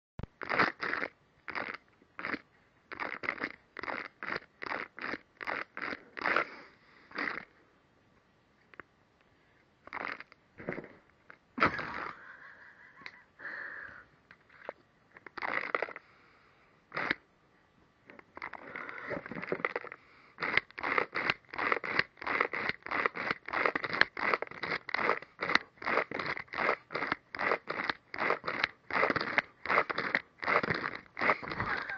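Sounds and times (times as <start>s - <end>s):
party blower raspy puffs: 3.9s - 7.6s, 18.4s - 31.9s.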